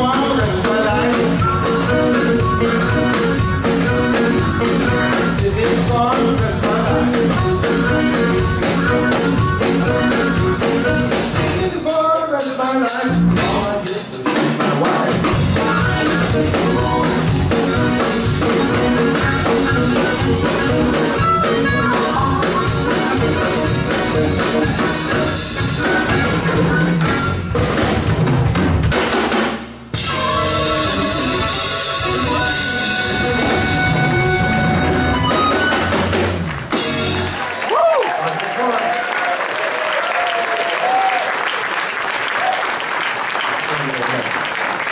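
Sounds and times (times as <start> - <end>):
amplified harmonica: 0.0 - 11.7, 15.4 - 27.6, 30.0 - 36.1
electric guitars: 0.0 - 11.8, 13.1 - 28.9, 30.0 - 37.8
drum kit beat: 0.0 - 37.7
bass guitar: 0.0 - 38.0.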